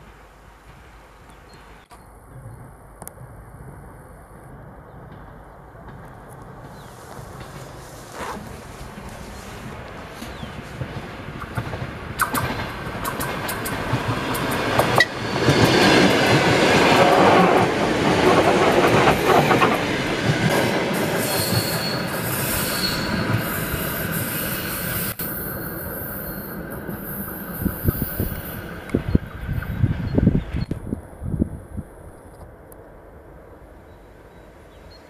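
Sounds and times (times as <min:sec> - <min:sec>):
train wheels clattering: 0:05.1 - 0:24.6
wheel squeals: 0:21.2 - 0:28.4.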